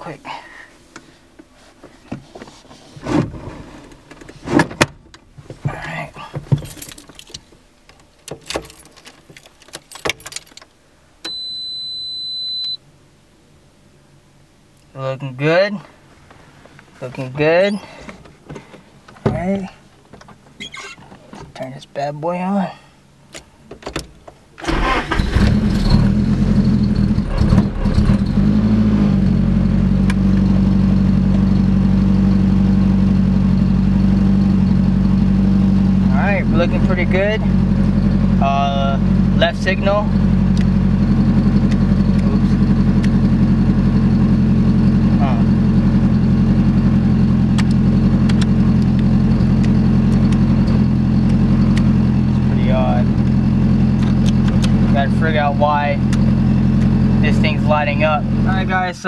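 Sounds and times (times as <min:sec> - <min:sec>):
car keys jangling: 0:06.5 - 0:07.5, 0:08.3 - 0:10.7
car engine starting and idling: 0:24.6 - 0:59.0.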